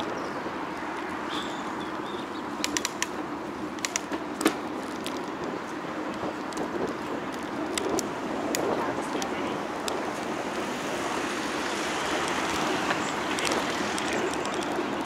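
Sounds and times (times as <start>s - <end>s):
wind and road noise: 0.0s - 15.0s
sharp clicks: 2.6s - 3.2s, 3.8s - 5.3s, 12.1s - 15.0s.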